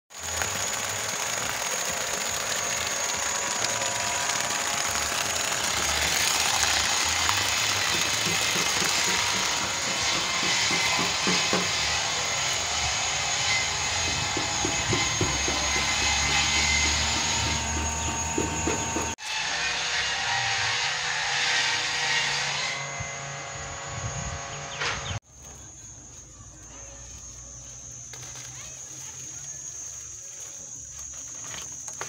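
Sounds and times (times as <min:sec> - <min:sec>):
water gushing from pipe: 0:00.1 - 0:09.8
water pump running: 0:00.1 - 0:19.3.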